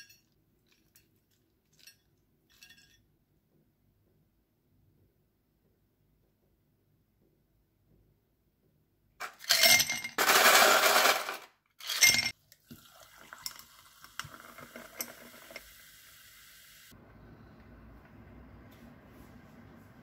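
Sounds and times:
sparkling water fizzing: 12.6s - 16.9s.

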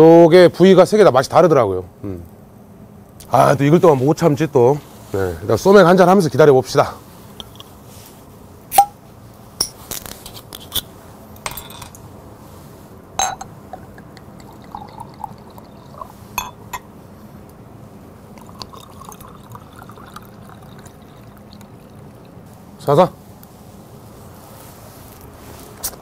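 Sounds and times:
bottle cap cracking open: 8.7s - 9.0s
bottles and glasses clinking: 8.8s - 9.0s, 11.4s - 12.0s, 13.2s - 16.9s
beer pouring into glass: 13.2s - 16.9s, 18.3s - 22.4s
liquid glugging into glass: 13.3s - 16.8s, 18.4s - 22.4s.

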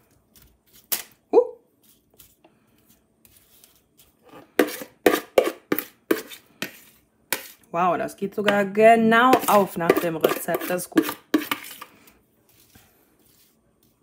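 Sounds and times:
metal spoon scraping a bowl: 4.2s - 7.6s, 9.3s - 11.9s.

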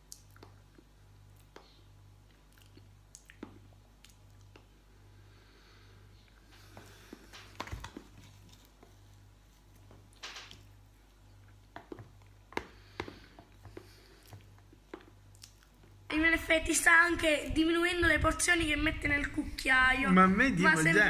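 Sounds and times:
mouth sounds of eating: 0.0s - 4.8s
low steady hum: 0.0s - 21.0s.

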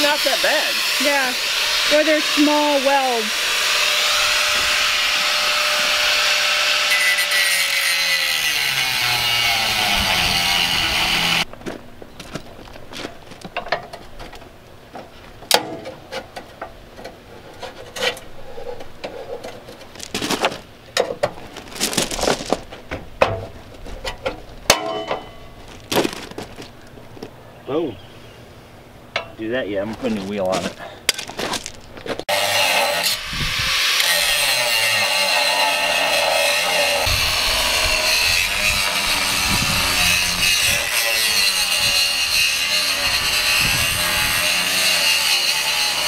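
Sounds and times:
angle grinder grinding metal: 0.0s - 11.5s, 32.3s - 46.0s
metal knocks and scraping: 11.6s - 27.3s.

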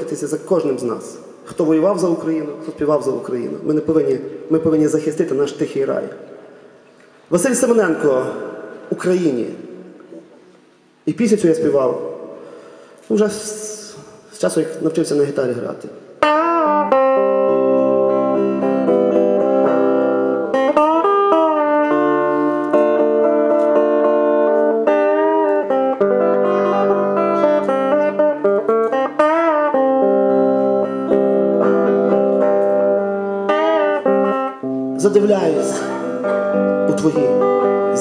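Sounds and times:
electric guitar held notes and bends: 16.2s - 38.0s.

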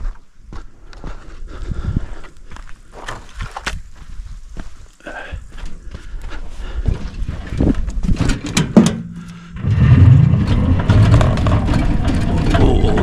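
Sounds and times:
tricycle body rattling on bumps: 7.2s - 9.0s, 9.6s - 13.0s
loud low rumble: 9.5s - 13.0s.

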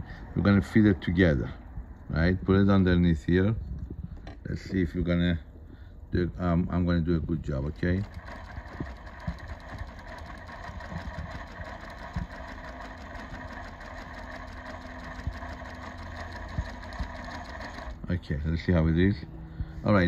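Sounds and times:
sewing machine running: 7.6s - 18.1s.

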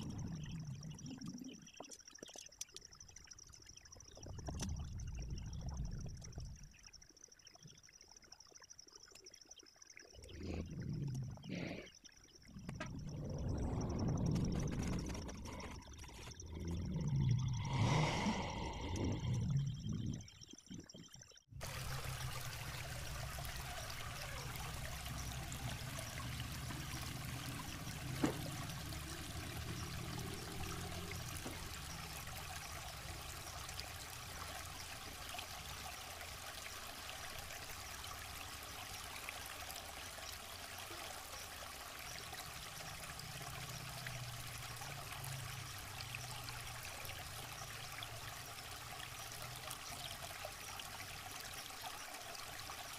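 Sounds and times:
hum: 0.0s - 39.3s.

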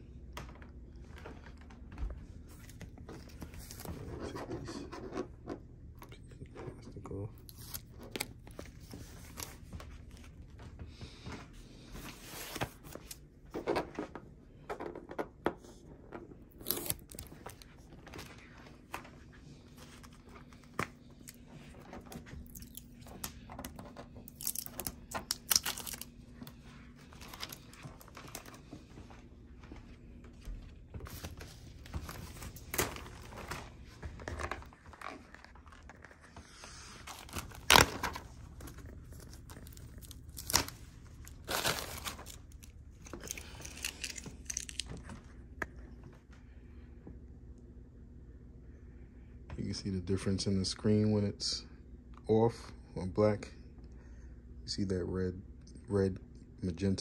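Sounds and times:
packing material rustling: 23.9s - 28.6s, 31.0s - 45.0s.

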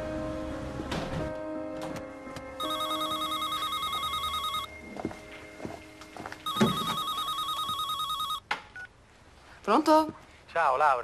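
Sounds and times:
electronic telephone ringer trilling: 2.6s - 4.7s, 6.5s - 8.4s.

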